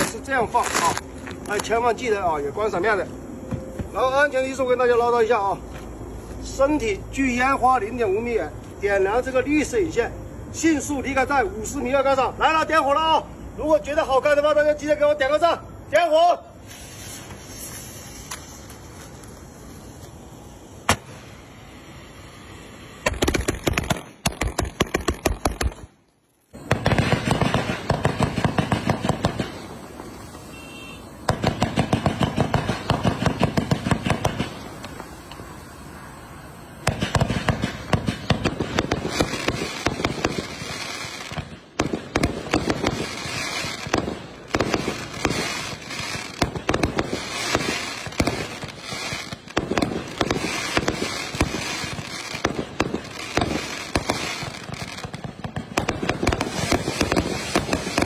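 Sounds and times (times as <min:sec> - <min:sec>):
fireworks launch thumps and bursts: 0:03.5 - 0:04.0, 0:16.7 - 0:20.2, 0:20.8 - 0:21.4, 0:23.0 - 0:25.9, 0:26.6 - 0:30.6, 0:31.2 - 0:35.5, 0:36.8 - 0:58.0.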